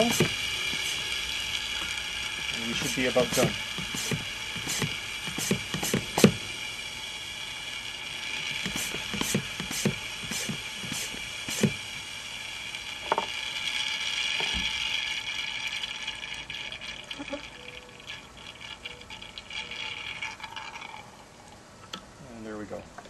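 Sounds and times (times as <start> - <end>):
hand pump clicking: 0.0 - 6.4, 8.4 - 11.8
hiss of air sucked through tube: 0.0 - 12.8.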